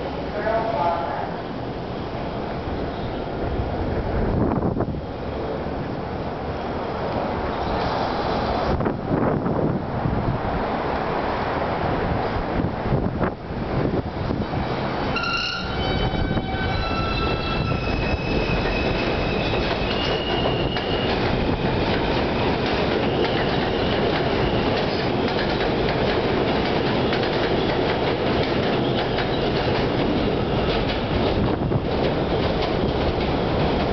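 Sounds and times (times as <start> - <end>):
train wheels rumbling on track: 0.0 - 33.9.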